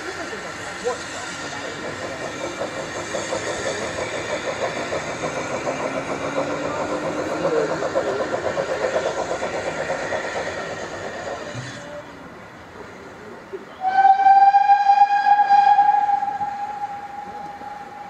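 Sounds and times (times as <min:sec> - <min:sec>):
steam locomotive chuffing: 0:00.0 - 0:18.0
steam whistle: 0:13.8 - 0:18.0.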